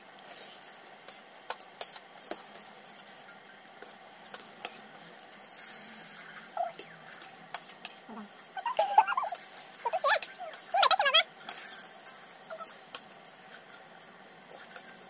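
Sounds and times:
cutlery clinking on metal plates: 9.3 - 15.0.

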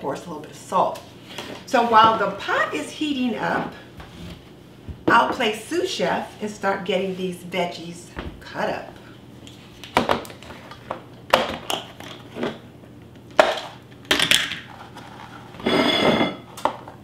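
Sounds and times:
kitchenware clinks and knocks: 15.6 - 16.5.

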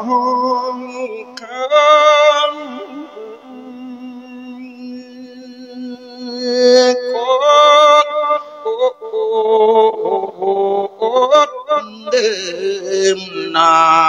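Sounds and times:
person chanting into microphone: 0.0 - 14.0.

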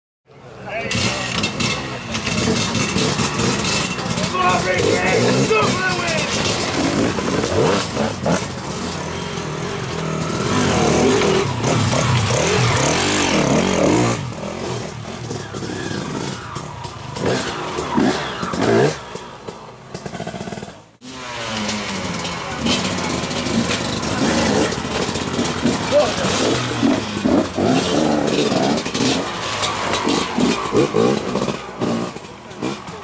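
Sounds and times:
dirt bike engines revving: 0.3 - 33.0.

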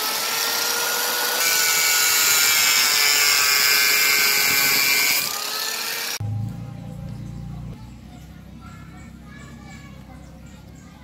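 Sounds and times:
angle grinder cutting plastic: 0.0 - 6.2.

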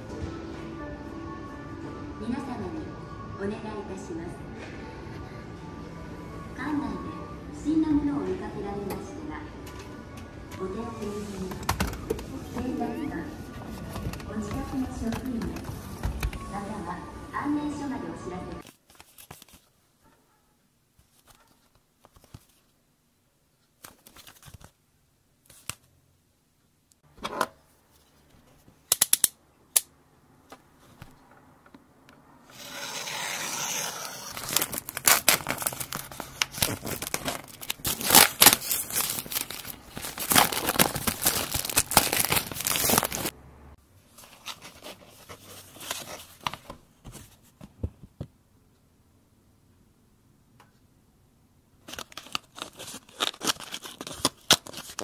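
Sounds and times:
knife slitting plastic wrap: 32.5 - 43.3, 52.0 - 55.0
plastic wrap crinkling: 34.0 - 43.3, 51.8 - 55.0
cardboard box rustling: 34.1 - 43.3.

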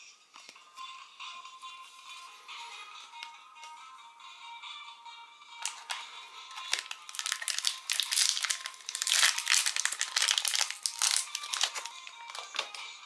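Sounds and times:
foil wrapper crinkling and tearing: 5.7 - 12.8.

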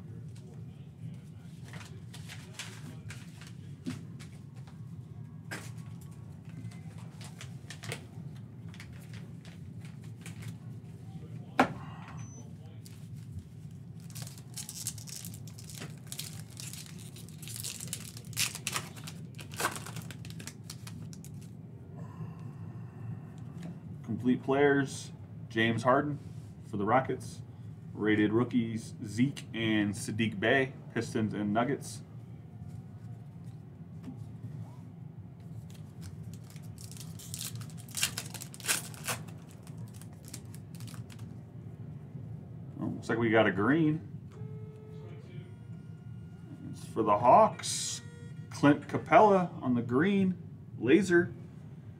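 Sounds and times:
steady low hum: 0.0 - 51.9
wrapper crinkling and tearing: 13.9 - 21.5, 35.6 - 41.3.

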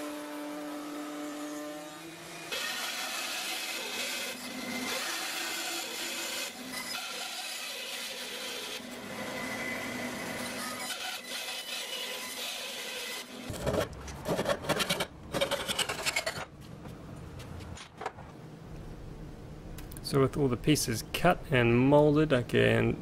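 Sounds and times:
router cutting wood: 0.0 - 13.5
bandsaw cutting a board: 0.0 - 15.1.

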